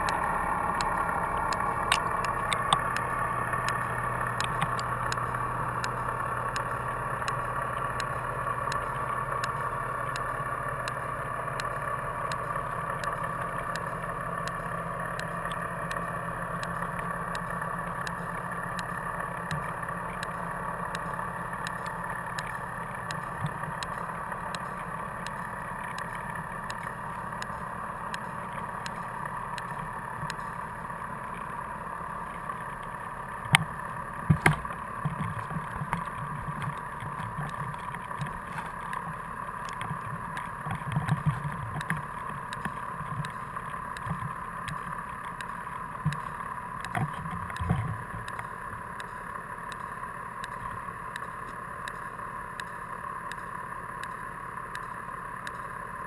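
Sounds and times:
muffled underwater noise: 12.6s - 54.4s
dull low bumps: 32.4s - 49.2s.

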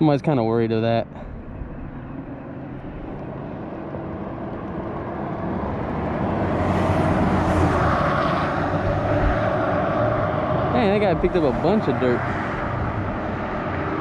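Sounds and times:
vehicle passing by: 1.2s - 14.0s.

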